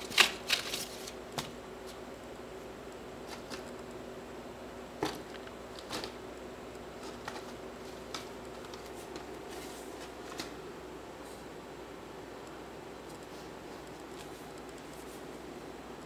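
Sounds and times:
kitten paws scratching paper pulp: 0.0 - 2.0, 3.2 - 3.7.

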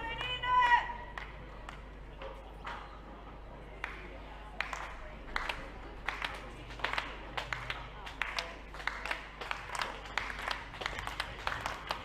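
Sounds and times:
murmur of voices: 0.0 - 12.0
spectators clapping in rhythm: 1.1 - 2.0, 3.8 - 12.0.

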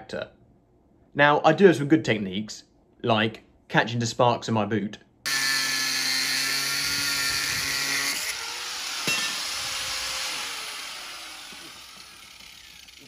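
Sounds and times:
angle grinder cutting steel: 5.3 - 13.0.

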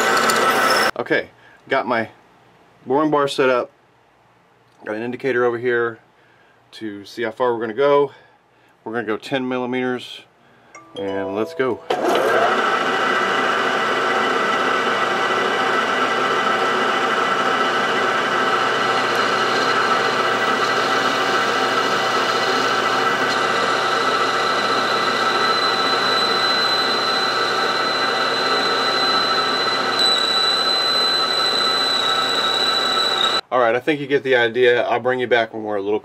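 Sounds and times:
metal lathe whirring: 0.0 - 0.9, 11.9 - 33.4
thin high whine: 23.8 - 33.4.

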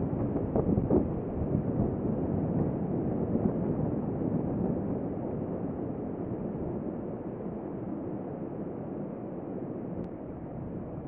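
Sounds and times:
wind buffeting microphone: 0.0 - 7.6.

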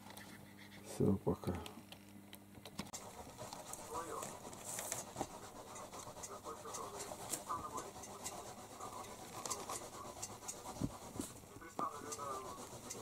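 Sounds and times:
paper rustling and scratching: 2.9 - 13.0.

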